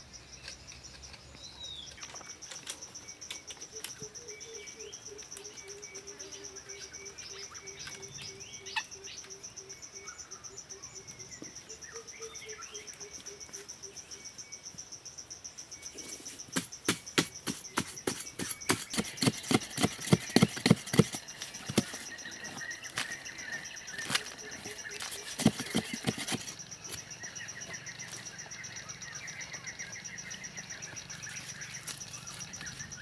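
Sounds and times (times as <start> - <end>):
insects chirring: 0.0 - 33.0
birds calling: 0.4 - 14.5, 15.8 - 33.0
digging tool striking dry soil: 16.4 - 23.2, 23.9 - 27.0.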